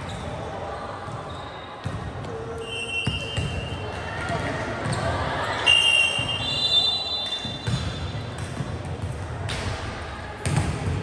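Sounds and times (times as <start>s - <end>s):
ball bouncing on court floor: 3.0s - 5.1s, 7.4s - 11.0s.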